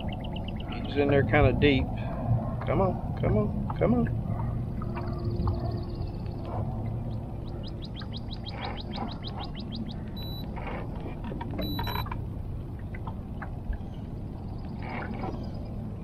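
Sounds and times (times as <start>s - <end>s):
low background rumble: 0.0s - 16.0s
short electronic beeps: 10.2s - 10.5s, 11.6s - 12.0s.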